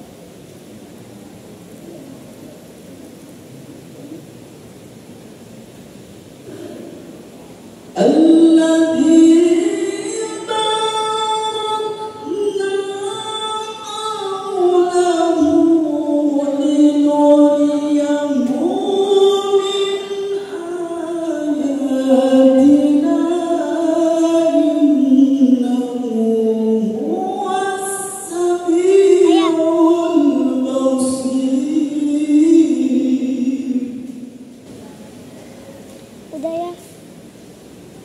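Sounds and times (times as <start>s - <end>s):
man reciting melodically into microphone: 8.0s - 34.5s.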